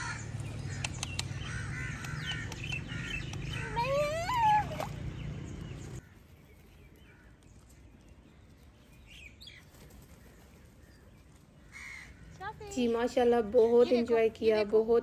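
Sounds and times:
faint bird calls: 0.0s - 6.2s
faint outdoor ambience: 0.0s - 15.0s.

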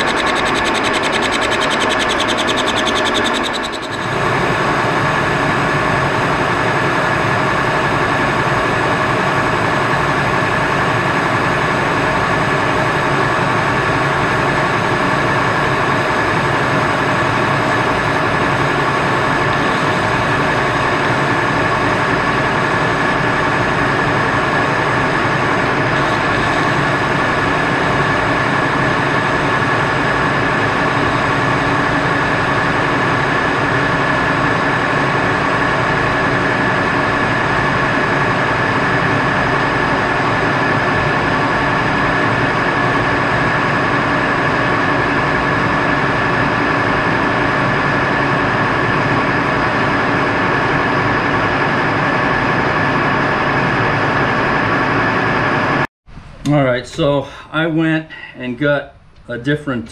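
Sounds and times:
metal lathe cutting: 0.0s - 4.2s
high ringing tool chatter: 0.0s - 4.4s.

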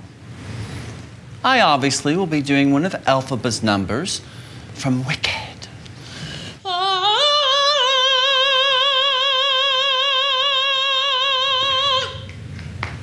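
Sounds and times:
man singing high note with vibrato: 6.6s - 12.3s.

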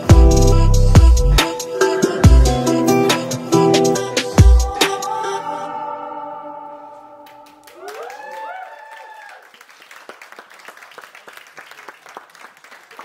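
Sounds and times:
dance music: 0.0s - 6.9s
audience whooping: 7.2s - 9.8s
audience applause: 7.6s - 13.0s.

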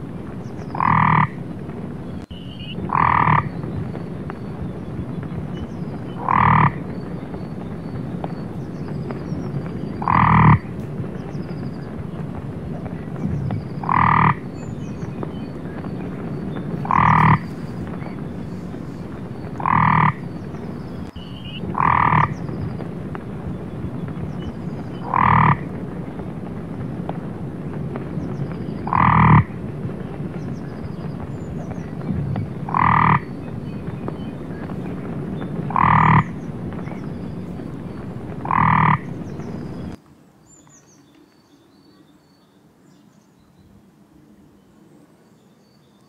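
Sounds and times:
frog croaking: 0.6s - 1.4s, 2.3s - 3.6s, 5.6s - 7.2s, 9.8s - 10.8s, 13.5s - 22.8s, 25.0s - 25.8s, 28.7s - 29.6s, 31.6s - 34.9s, 35.6s - 40.0s.

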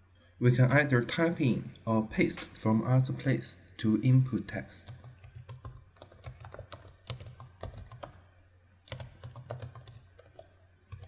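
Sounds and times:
computer keyboard typing: 4.8s - 8.2s, 8.9s - 11.0s.

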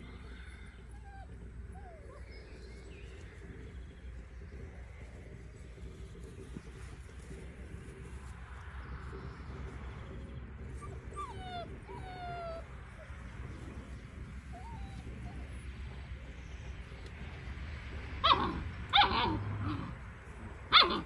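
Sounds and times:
puppies whining: 0.0s - 4.4s, 9.0s - 16.3s, 18.2s - 20.0s, 20.7s - 21.0s
puppies yelping barks: 0.8s - 2.4s, 10.6s - 16.0s, 18.0s - 21.0s.

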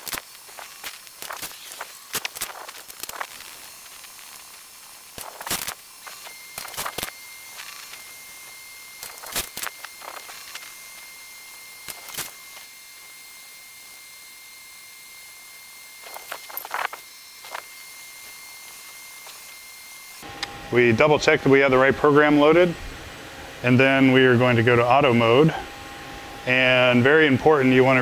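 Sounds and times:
whirring clicking bursts: 0.0s - 20.6s
machine electrical hum and whine: 0.0s - 28.0s.

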